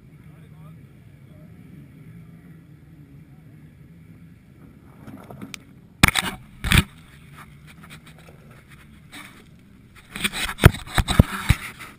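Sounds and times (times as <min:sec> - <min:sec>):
camera rubbing and handling: 0:04.9 - 0:11.9.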